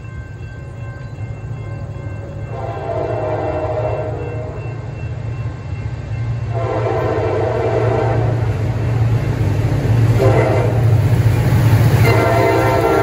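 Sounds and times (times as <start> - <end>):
train air horn blasts: 2.5 - 4.6, 6.5 - 8.6, 10.1 - 11.0, 12.0 - 13.0.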